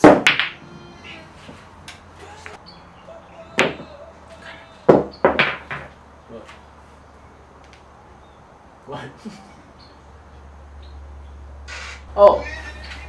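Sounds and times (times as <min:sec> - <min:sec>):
pool balls clacking: 0:00.0 - 0:02.6, 0:03.5 - 0:06.7.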